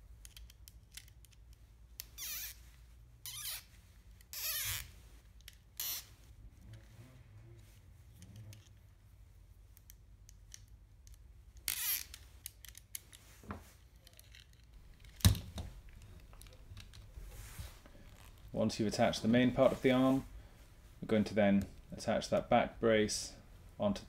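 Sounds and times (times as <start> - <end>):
plastic parts clicking: 0.2 - 2.2, 9.8 - 13.2, 13.8 - 17.1.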